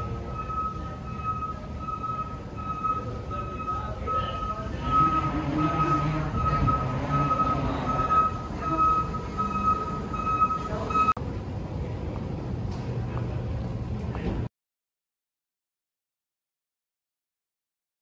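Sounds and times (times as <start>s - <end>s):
high electronic beeping: 0.0s - 11.2s.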